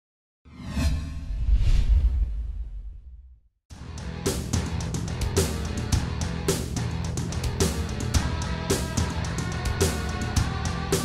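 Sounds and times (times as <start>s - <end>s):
whooshes: 0.5s - 3.5s.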